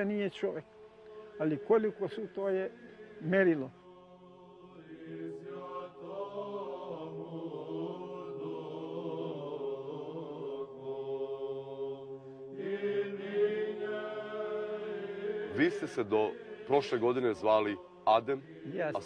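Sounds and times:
voices chanting a melody: 0:00.0 - 0:19.0.

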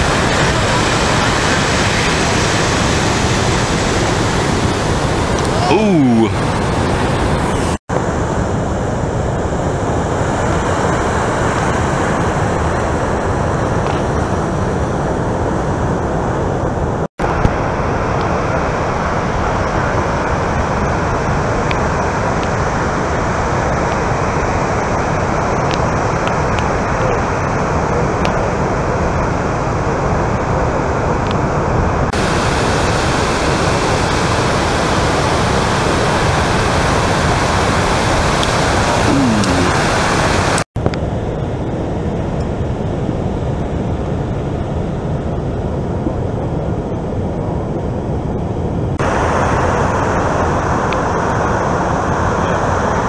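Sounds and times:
heavy surf roaring: 0:00.0 - 0:25.4, 0:32.2 - 0:40.6.

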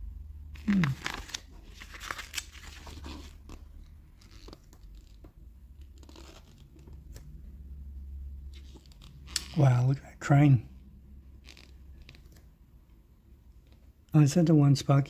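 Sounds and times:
glossy paper pages turning: 0:00.6 - 0:07.3, 0:08.5 - 0:09.6, 0:11.4 - 0:12.5.

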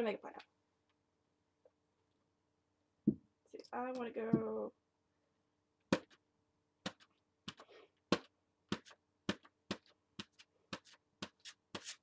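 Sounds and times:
balloon tapping on paper: 0:05.9 - 0:06.2, 0:06.8 - 0:11.9.

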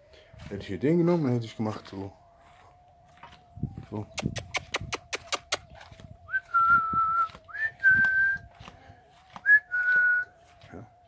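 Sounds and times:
person whistling: 0:06.3 - 0:08.5, 0:09.4 - 0:10.3.

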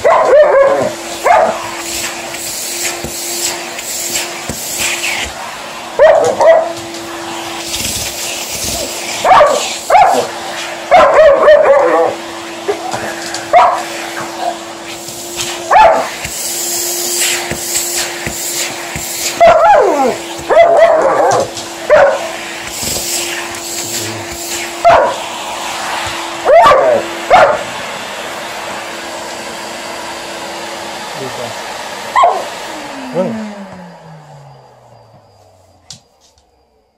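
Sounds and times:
dog barking and vocalizing: 0:00.0 - 0:01.7, 0:06.0 - 0:06.8, 0:08.8 - 0:12.2, 0:13.5 - 0:14.6, 0:15.6 - 0:16.2, 0:19.3 - 0:22.3, 0:24.7 - 0:25.2, 0:26.4 - 0:27.7, 0:32.2 - 0:32.5
vacuum cleaner humming: 0:00.0 - 0:36.9.

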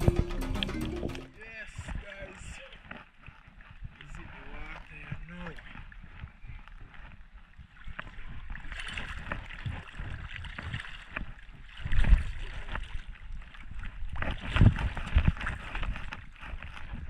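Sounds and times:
shallow water sloshing: 0:00.0 - 0:17.0.

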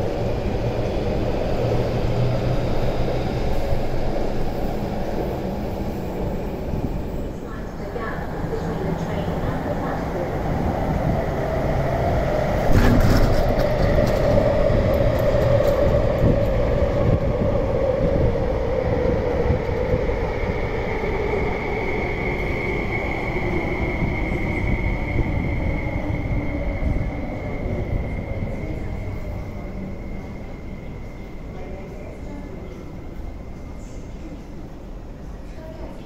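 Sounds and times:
train wheels rumbling on rails: 0:00.0 - 0:36.0.

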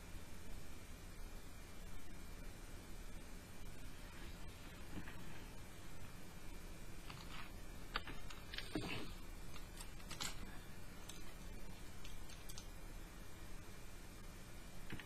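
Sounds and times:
paper rustling: 0:04.1 - 0:05.6, 0:07.0 - 0:12.7.

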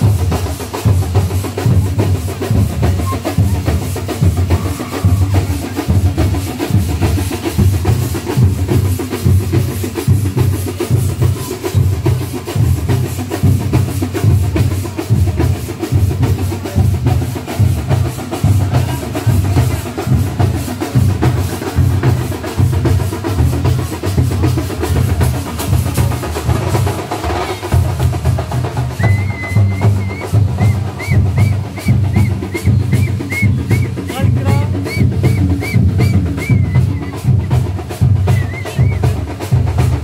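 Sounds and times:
loud fast drum music: 0:00.0 - 0:40.0.

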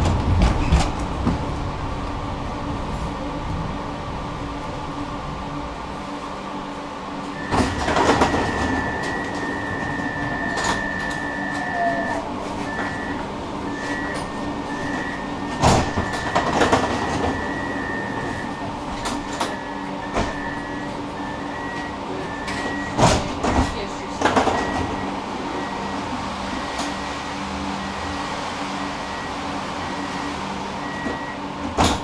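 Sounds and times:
tram electrical hum: 0:00.0 - 0:32.0
knocks and clunks: 0:07.4 - 0:11.8, 0:12.5 - 0:20.7, 0:21.6 - 0:25.0, 0:31.0 - 0:32.0
high beep: 0:07.4 - 0:23.0, 0:28.8 - 0:31.4.

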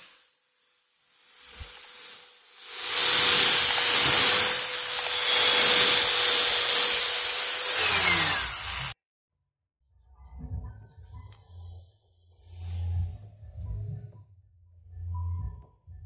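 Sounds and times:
angle grinder whine: 0:00.0 - 0:09.0
disc rasping into wood: 0:02.7 - 0:08.9.

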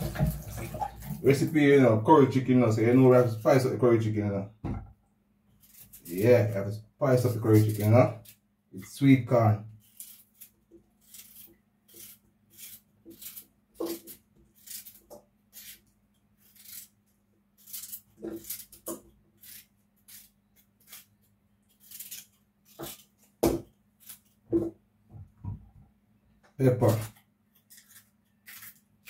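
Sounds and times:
knife slicing carrot: 0:05.6 - 0:17.0, 0:17.6 - 0:24.8, 0:26.6 - 0:29.0.

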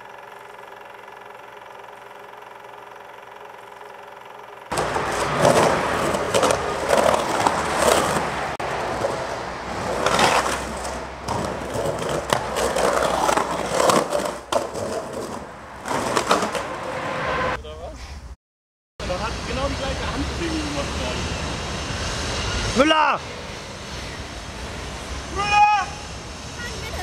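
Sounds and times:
skateboard wheels rolling on concrete: 0:04.6 - 0:17.6
skateboard knocking: 0:04.7 - 0:09.2, 0:09.8 - 0:16.9.

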